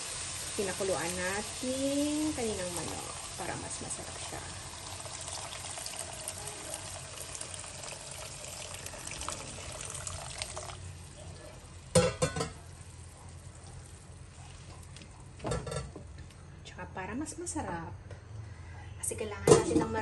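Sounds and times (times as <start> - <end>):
liquid pouring into a wok: 0.0 - 14.7.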